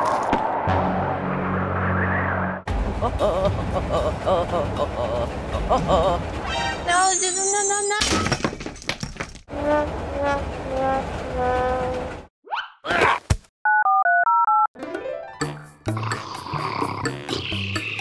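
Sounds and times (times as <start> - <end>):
background music: 14.8 - 18.0.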